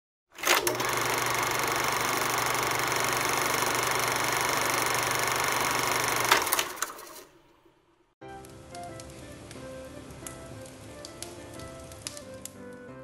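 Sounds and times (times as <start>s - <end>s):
film projector whirring: 0.4s - 7.6s.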